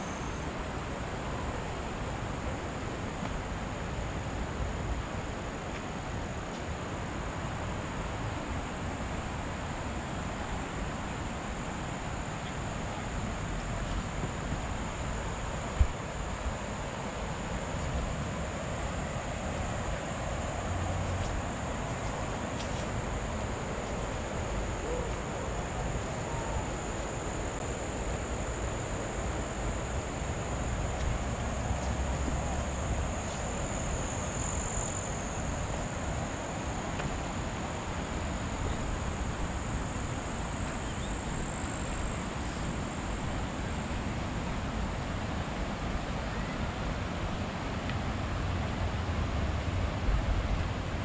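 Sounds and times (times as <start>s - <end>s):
steady rushing noise: 0.0s - 51.0s
high-pitched insect drone: 11.6s - 43.6s.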